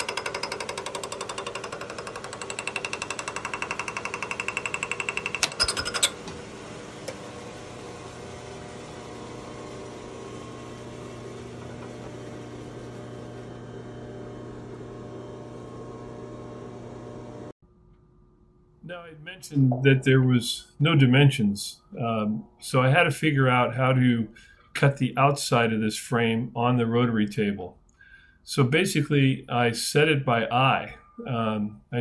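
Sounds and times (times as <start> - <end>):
milling tool chattering: 0.0 - 6.2
machine humming: 0.0 - 24.7.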